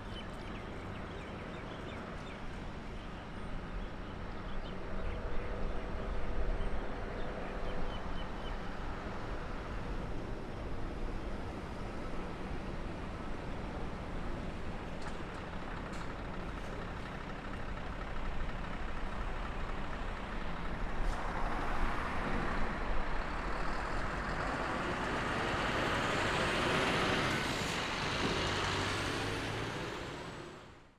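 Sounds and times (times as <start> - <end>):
locomotive engine drone: 0.0 - 30.9.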